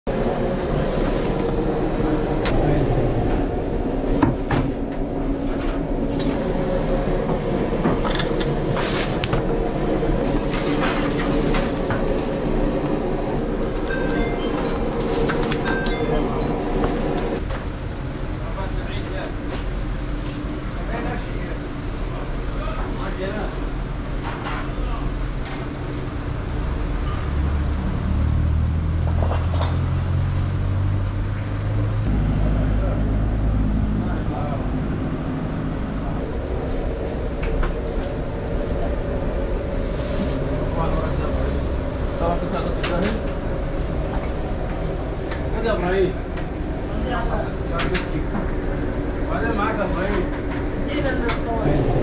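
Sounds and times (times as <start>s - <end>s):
vehicle engine rumbling: 0.0s - 52.0s
vehicle engine running: 26.1s - 47.0s.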